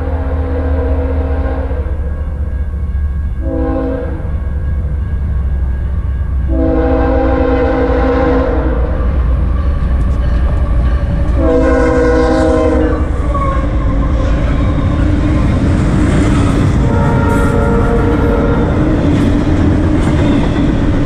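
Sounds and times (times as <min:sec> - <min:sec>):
locomotive air horn blasts: 0:00.0 - 0:02.2, 0:03.4 - 0:04.4, 0:06.4 - 0:09.1, 0:11.3 - 0:14.3, 0:16.8 - 0:18.9
train rumbling past: 0:00.0 - 0:21.0.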